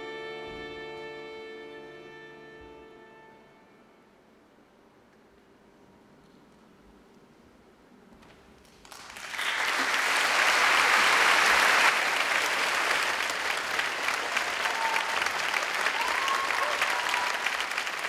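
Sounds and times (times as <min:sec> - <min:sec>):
audience applause: 0:08.8 - 0:18.0.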